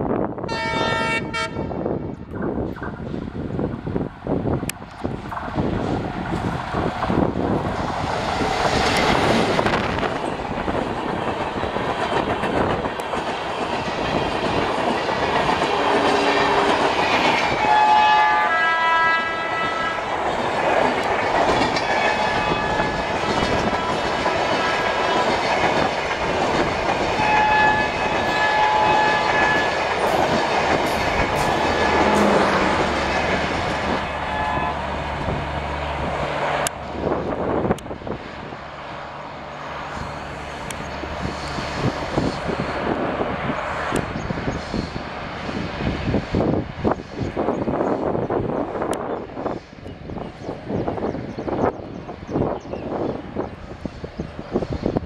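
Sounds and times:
diesel locomotive passing: 0.0s - 55.0s
two-tone locomotive horn: 0.4s - 2.0s, 15.7s - 16.9s, 17.5s - 20.0s, 22.0s - 24.8s, 27.2s - 30.3s, 31.5s - 32.9s, 34.1s - 35.0s
train coaches clattering over rails: 5.2s - 18.4s, 19.4s - 38.1s.

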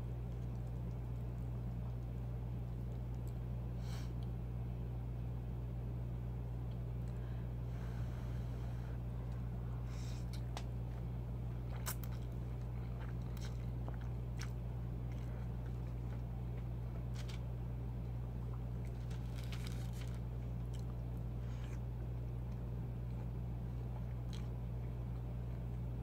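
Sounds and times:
steady low hum: 0.0s - 26.0s
chewing with wet mouth clicks: 0.1s - 3.5s, 10.2s - 25.9s.

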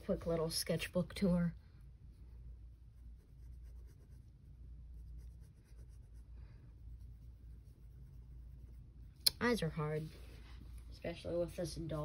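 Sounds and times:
pencil scratching on paper: 2.8s - 10.1s.

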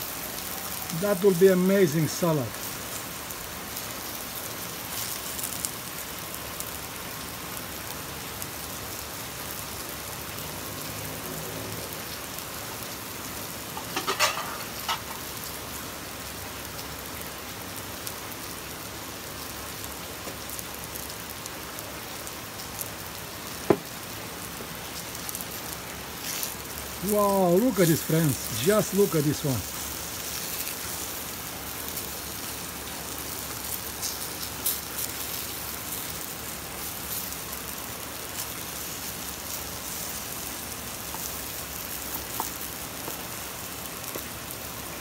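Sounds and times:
eggplant frying in oil: 0.0s - 45.0s.

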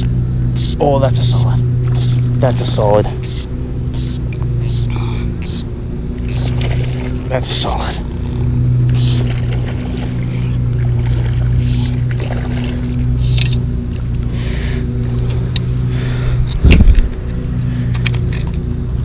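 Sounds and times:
low motor hum: 0.0s - 19.0s
fish splashing at surface: 6.3s - 7.3s, 8.9s - 13.3s.

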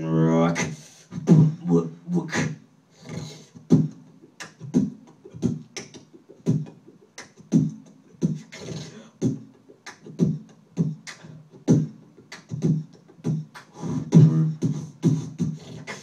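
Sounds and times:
beatboxing into a microphone: 0.0s - 16.0s.

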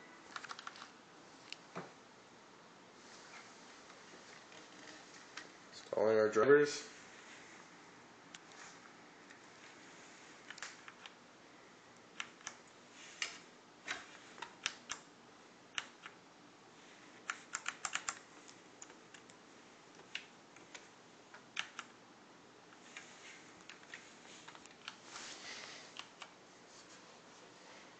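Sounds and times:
computer keyboard keystrokes: 0.3s - 0.9s, 10.4s - 11.2s, 13.2s - 15.0s, 15.7s - 16.2s, 17.2s - 18.2s, 21.4s - 21.9s.

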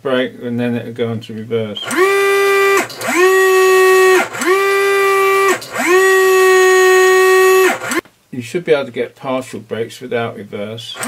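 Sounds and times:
electric motor whining: 1.8s - 8.0s.

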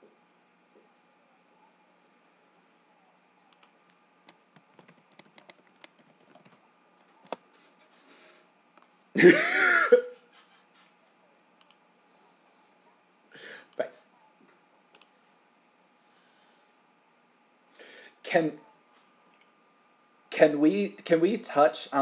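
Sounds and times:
keyboard typing clicks: 3.5s - 6.6s.

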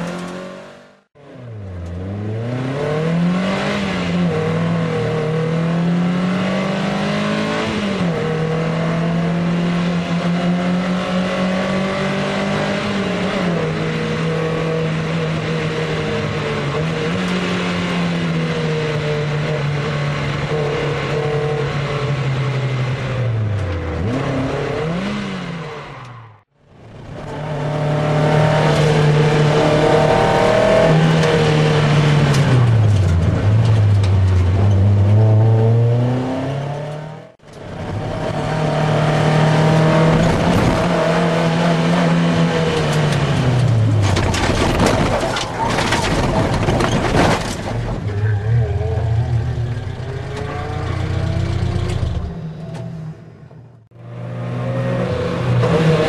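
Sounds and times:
race car engine revving: 27.3s - 45.1s
knocks and rattles: 43.9s - 48.2s.

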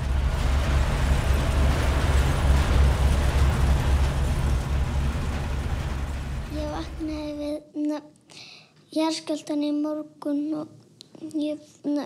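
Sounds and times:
falling goods and shelving crashing: 0.0s - 7.5s
earthquake rumble: 0.0s - 7.6s.

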